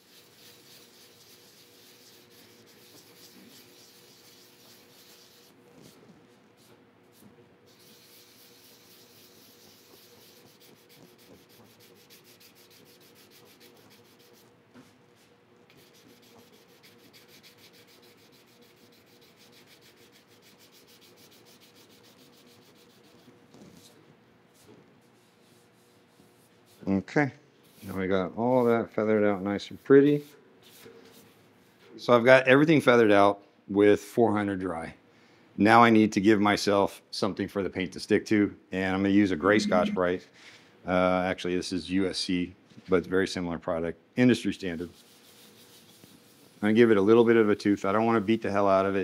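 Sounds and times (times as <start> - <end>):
sandpaper scratching metal: 0.0 - 5.6, 7.7 - 14.5, 15.8 - 23.3, 44.6 - 49.0.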